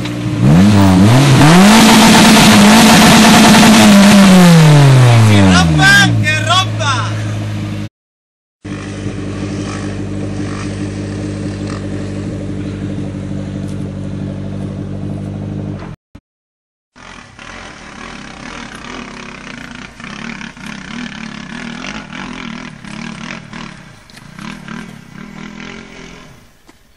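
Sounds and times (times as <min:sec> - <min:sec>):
off-road engine revving: 0:00.0 - 0:07.9, 0:08.6 - 0:15.9, 0:17.0 - 0:26.6.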